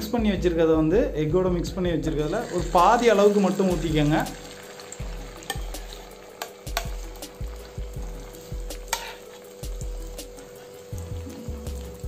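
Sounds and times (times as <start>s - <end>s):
batter sizzling in hot oil: 2.1s - 12.0s
steel spoon scraping pan: 8.2s - 9.7s.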